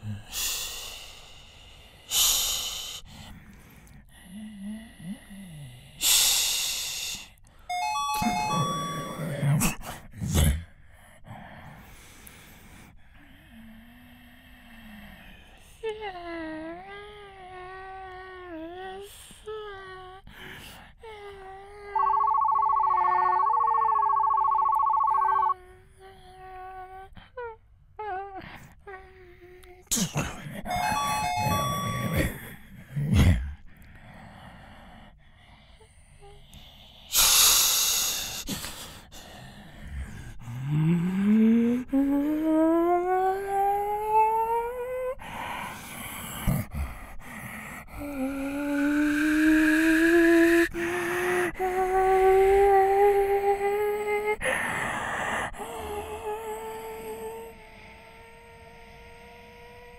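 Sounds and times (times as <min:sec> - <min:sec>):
person imitating air hisses: 0:02.1 - 0:03.1, 0:37.1 - 0:39.1
high stepped vocal tones: 0:07.7 - 0:09.4, 0:21.9 - 0:25.6
hummed tone: 0:07.7 - 0:09.5, 0:21.7 - 0:25.6, 0:30.7 - 0:32.5, 0:55.7 - 0:59.9
person humming low tones: 0:40.4 - 0:45.2, 0:48.0 - 0:54.6, 0:55.4 - 0:59.9.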